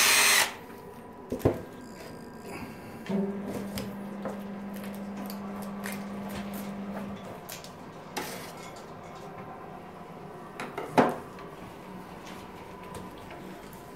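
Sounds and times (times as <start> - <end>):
low steady hum: 0.2 - 8.1.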